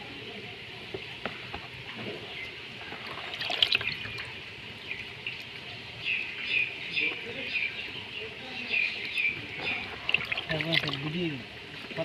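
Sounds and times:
water splashing in a plastic basin: 2.8s - 4.4s, 9.5s - 12.0s.

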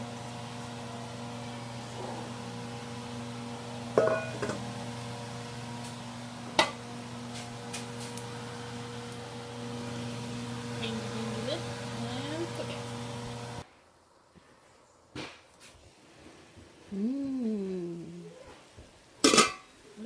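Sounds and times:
steady electrical hum: 0.0s - 18.3s
cookware clanking on stovetop: 3.9s - 4.7s, 19.2s - 19.7s.

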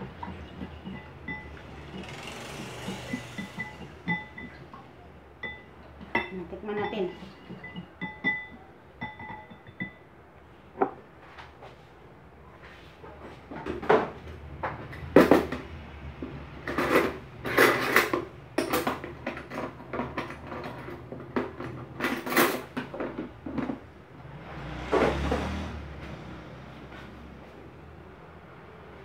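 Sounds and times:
dishes and utensils clinking: 0.0s - 10.1s, 13.1s - 23.8s.

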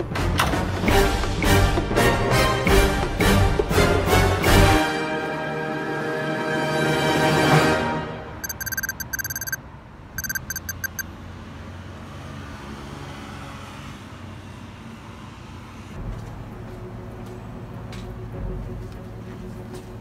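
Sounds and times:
rapid electronic beeps: 8.4s - 9.6s, 10.2s - 11.0s.

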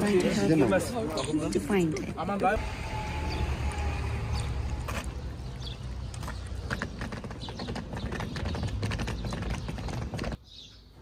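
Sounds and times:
clattering clicks on stone paving: 3.6s - 10.4s.

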